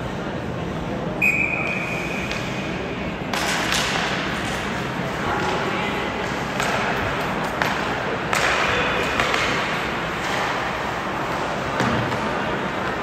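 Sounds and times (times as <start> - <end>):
arena noise: 0.0 - 13.0
hockey sticks and puck clacking: 1.7 - 13.0.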